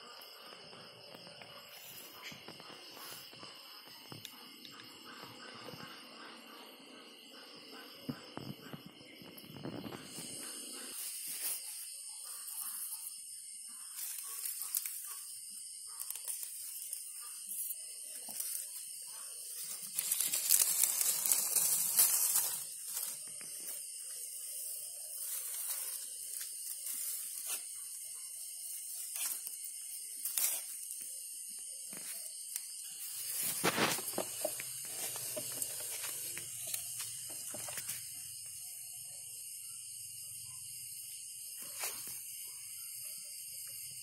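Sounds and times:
high insect trill: 0.0s - 44.0s
grass and dry stalks rustling: 18.1s - 27.8s, 32.9s - 38.0s.

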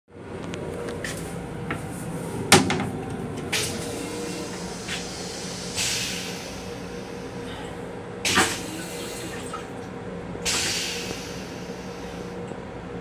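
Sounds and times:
railcar hum: 0.1s - 13.0s
short hisses: 3.6s - 9.3s.

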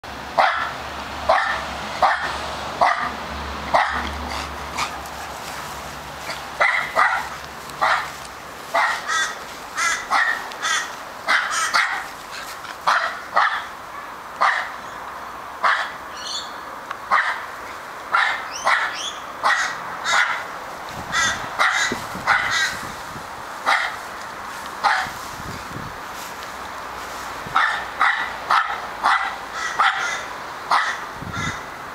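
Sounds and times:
dog barking: 0.4s - 4.9s, 6.6s - 12.1s, 12.9s - 14.8s, 15.6s - 16.0s, 17.1s - 17.4s, 18.1s - 20.4s, 21.2s - 22.7s, 23.7s - 24.0s, 24.8s - 25.2s, 27.6s - 31.0s.

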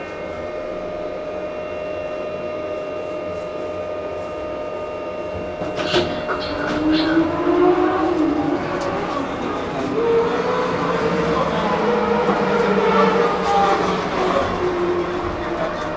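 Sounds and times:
elevator hum and whine: 0.0s - 15.9s
elevator doors sliding open: 5.4s - 15.9s.

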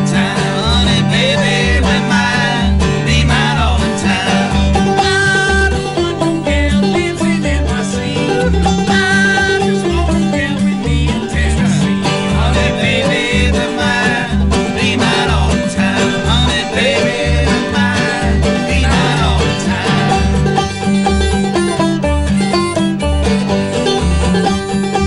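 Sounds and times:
acoustic guitar picking: 0.0s - 25.0s
banjo picking: 0.0s - 25.0s
upright bass plucking: 0.0s - 25.0s.

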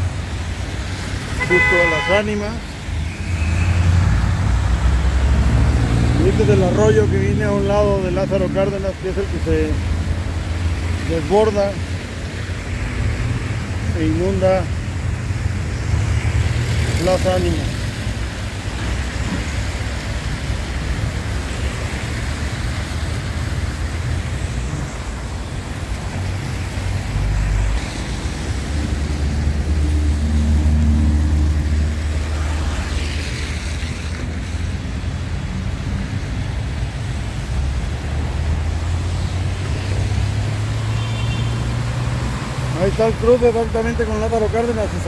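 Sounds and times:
creek rushing: 0.0s - 45.0s
road traffic on wet road: 0.0s - 45.0s
car passing close: 2.8s - 11.9s.

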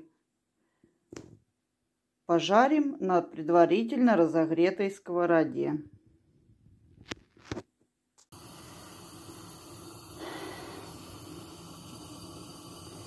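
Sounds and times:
oil hissing in a frying pan: 8.3s - 13.0s.

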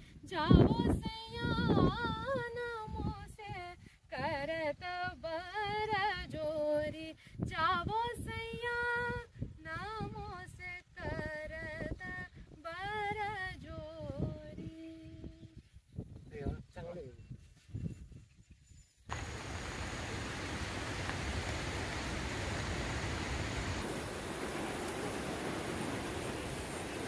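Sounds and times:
woman singing unaccompanied: 0.3s - 15.4s.

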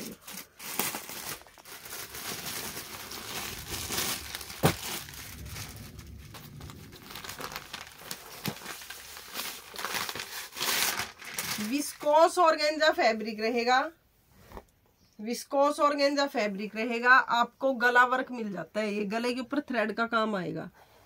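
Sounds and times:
plastic packaging crinkling: 0.0s - 12.1s.

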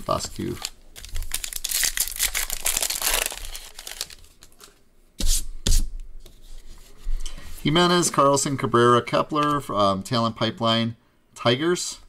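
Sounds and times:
foil wrapper tearing and crinkling: 0.1s - 4.8s.

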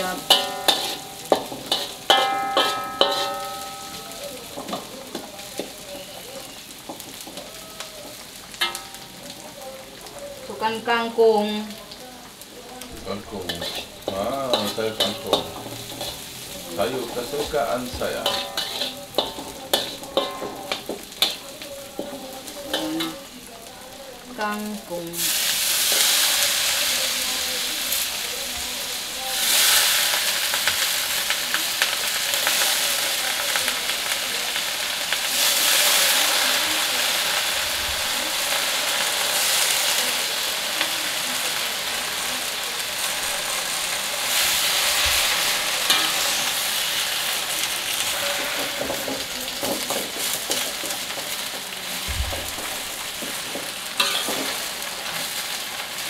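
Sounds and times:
metal spatula scraping a wok: 0.0s - 6.2s, 8.1s - 9.0s, 13.1s - 23.3s, 43.0s - 51.6s, 52.5s - 55.6s
vegetables sizzling in hot oil: 0.0s - 56.0s.

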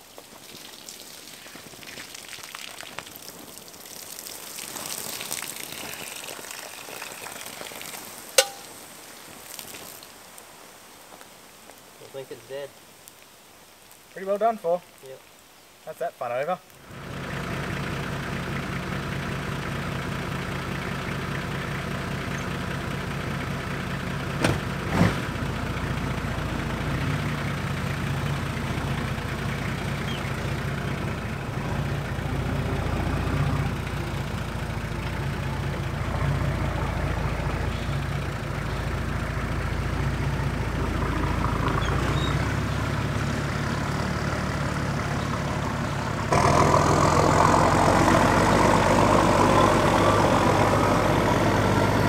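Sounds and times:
engine idling and driving: 4.6s - 9.0s, 16.8s - 52.0s.

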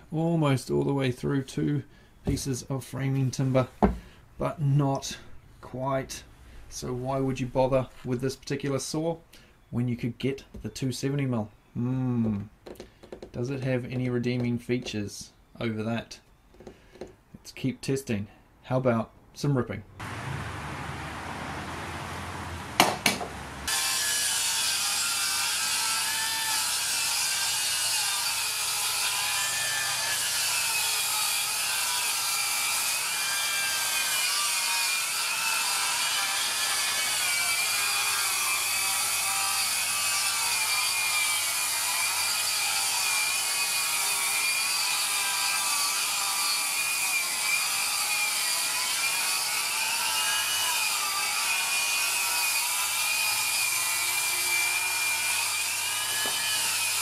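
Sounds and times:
circular saw cutting wood: 20.0s - 57.0s.

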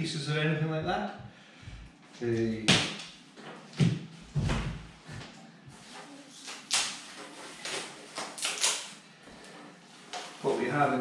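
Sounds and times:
plastic film rustling: 5.7s - 11.0s.

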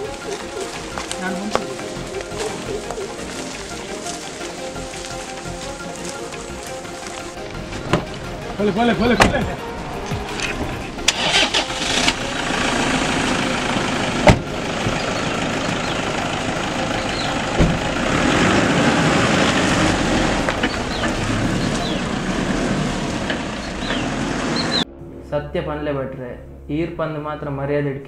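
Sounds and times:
car starting and driving off: 0.0s - 25.3s
car door slamming: 14.2s - 15.0s, 17.5s - 17.9s.

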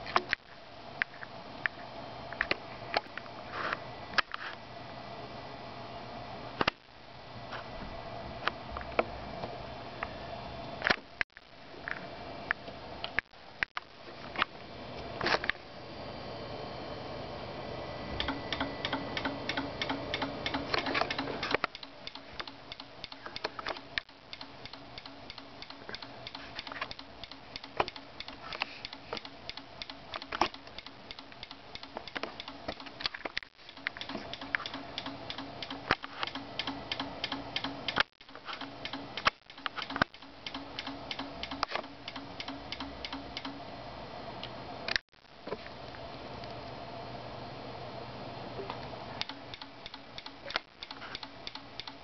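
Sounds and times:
steady low hum: 0.0s - 52.0s
relay clicking rapidly: 18.2s - 43.6s, 49.2s - 52.0s.

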